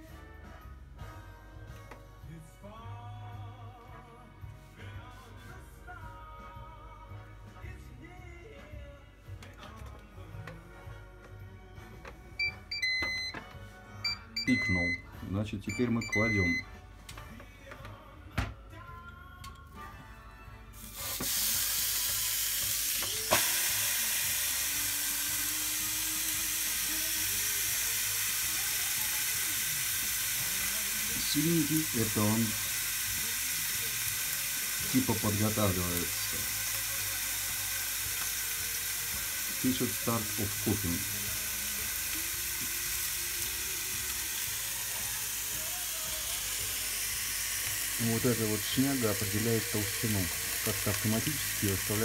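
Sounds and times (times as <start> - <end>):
steak sizzling on grill: 20.7 - 52.0.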